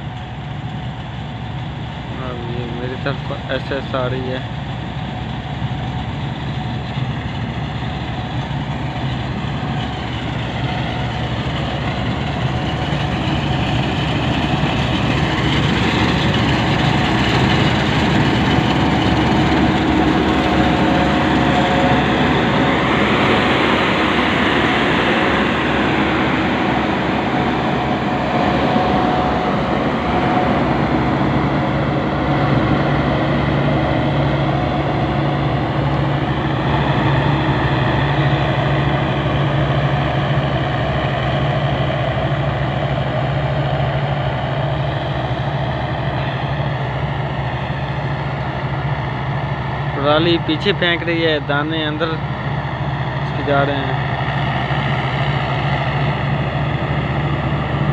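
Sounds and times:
combine harvester droning: 0.0 - 57.9.

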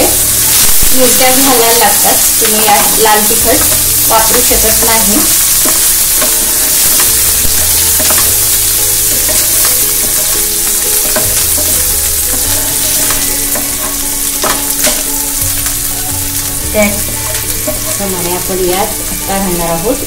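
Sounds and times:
onion sizzling in hot oil: 0.0 - 20.0
spatula scraping a pan: 0.1 - 15.8
spatula tapping on a pan: 5.6 - 8.5, 9.1 - 15.7.

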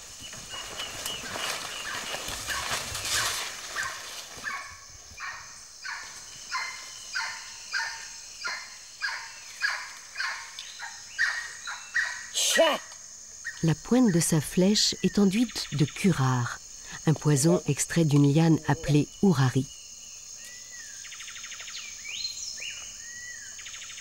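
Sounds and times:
monkey calling: 1.9 - 19.6.

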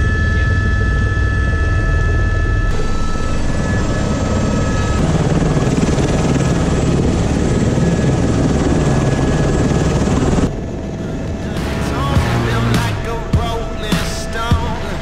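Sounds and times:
faint high whine: 0.0 - 6.7
helicopter rotor whirring rush: 0.0 - 15.0.

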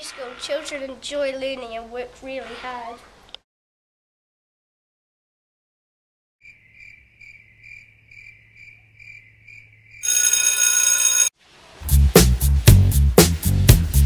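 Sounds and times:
bell ringing: 10.0 - 11.3
faint high beeping: 10.0 - 11.3
funk music: 11.8 - 14.0.

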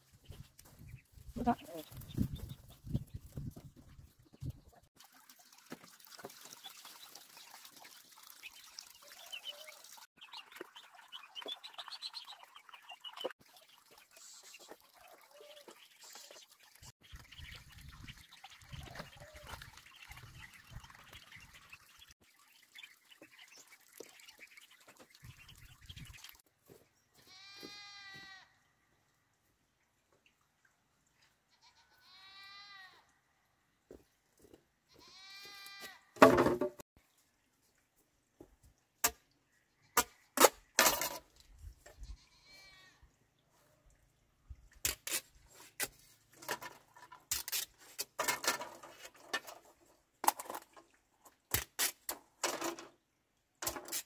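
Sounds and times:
water splashing: 5.0 - 26.4
bamboo pole dropped: 36.2 - 36.8.

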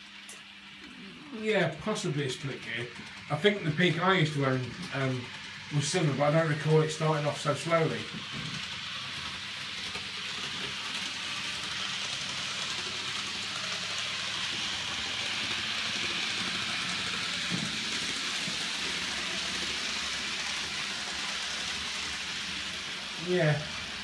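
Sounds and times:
model train motor running: 0.0 - 24.0.

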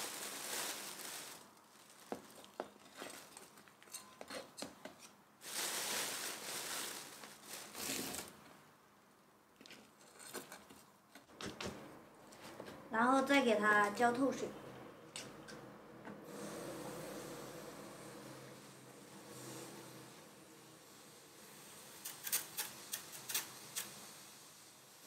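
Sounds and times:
soil rustling being poured: 0.0 - 3.7, 5.4 - 8.4
plastic mat crinkling: 0.0 - 3.8, 5.4 - 8.4.

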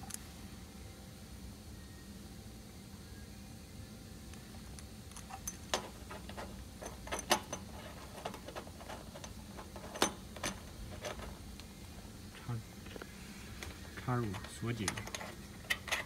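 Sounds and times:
metallic connector clicks and rattles: 5.1 - 11.4, 13.6 - 16.0.

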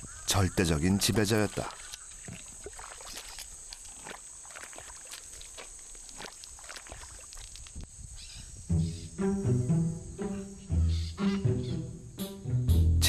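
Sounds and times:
faint ticks and rustles: 1.0 - 8.4.

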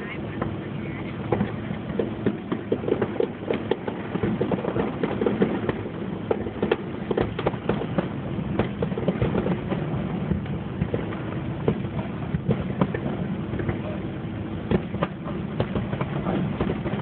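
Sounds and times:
fireworks bursting and crackling: 0.0 - 17.0.

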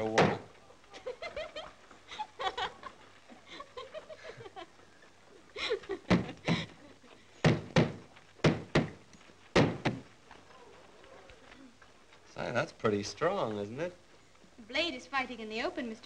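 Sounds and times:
soft laughing: 0.4 - 7.3
hammer striking nails: 7.4 - 9.0, 9.6 - 10.0.

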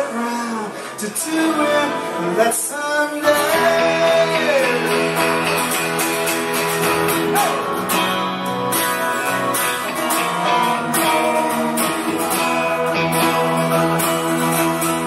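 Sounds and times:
electric guitar: 0.0 - 15.0
strummed acoustic guitars: 0.0 - 15.0.

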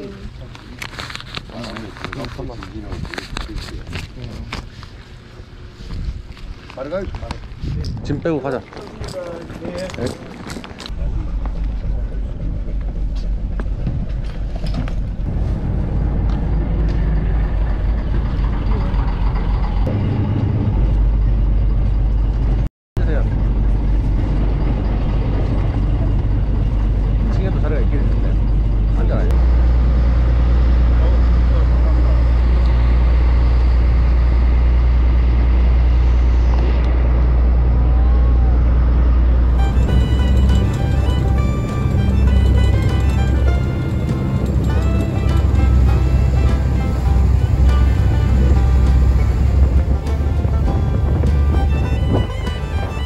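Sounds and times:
engine humming: 0.0 - 53.0.

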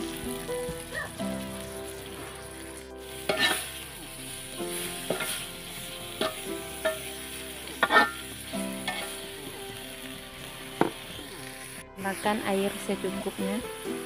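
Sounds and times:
sizzle of frying in oil: 0.0 - 14.0
spatula scraping wok: 0.0 - 14.0.

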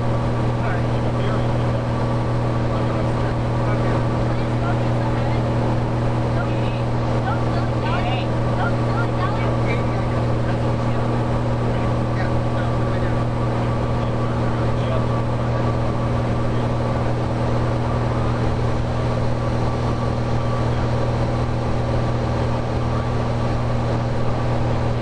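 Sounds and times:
airplane engine drone in cabin: 0.0 - 25.0.

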